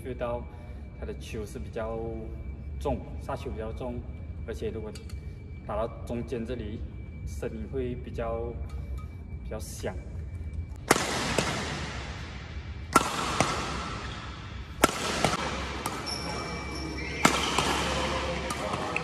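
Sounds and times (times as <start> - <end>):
racquet striking shuttlecock: 10.8 - 12.2, 12.9 - 19.0.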